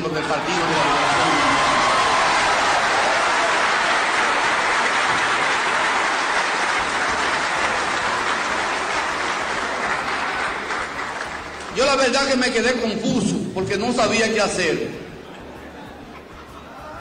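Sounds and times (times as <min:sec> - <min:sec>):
crowd applauding and cheering: 0:00.0 - 0:12.9.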